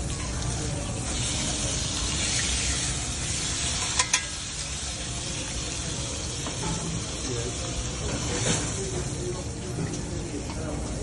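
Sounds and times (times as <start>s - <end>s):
steak sizzling in a pan: 1.0s - 9.2s.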